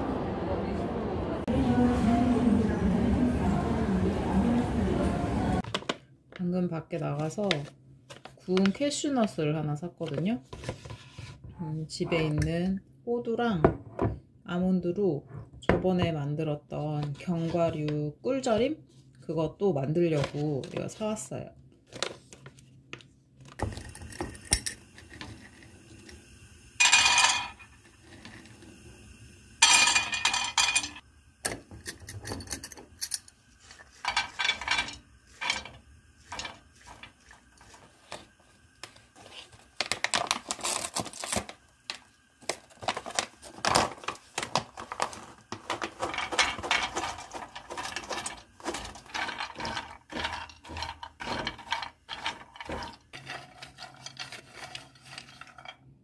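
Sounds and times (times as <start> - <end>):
nuts rattling in frying pan: 26.8 - 28.6, 29.6 - 31.0, 32.0 - 38.4, 39.6 - 55.9.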